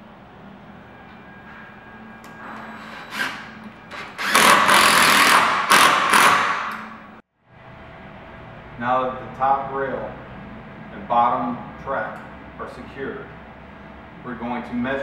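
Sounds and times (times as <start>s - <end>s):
cordless drill driving screw: 3.1s - 6.9s.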